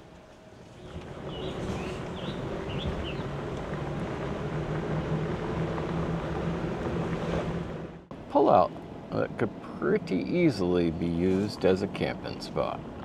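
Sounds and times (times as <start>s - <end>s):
vehicle engine running: 0.8s - 8.3s
bird chirps: 1.3s - 3.3s.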